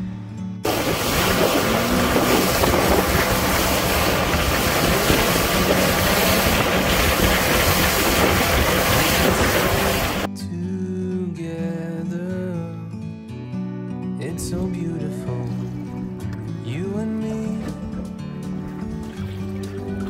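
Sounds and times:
boat motor rushing: 0.7s - 10.3s
low engine hum: 0.7s - 10.3s
water against hull: 0.7s - 10.3s, 17.2s - 20.0s
wind: 0.7s - 10.3s.

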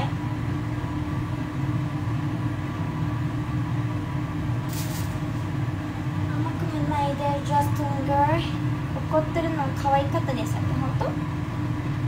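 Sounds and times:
low mechanical hum: 0.0s - 12.0s
short hiss: 4.7s - 5.2s.

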